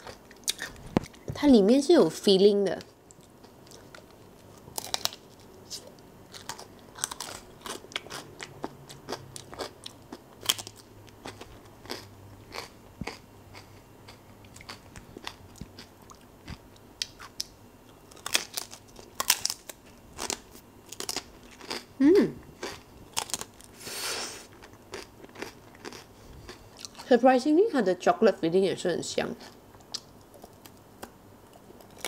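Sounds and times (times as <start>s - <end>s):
crunching wafer cone: 3.2s - 21.9s, 22.6s - 27.1s.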